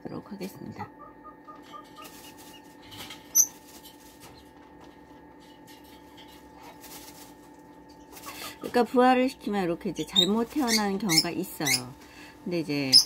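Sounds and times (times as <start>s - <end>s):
steady hum: 0.0s - 13.0s
chick high chirp: 0.6s - 2.6s
chicks peeping: 1.0s - 4.6s.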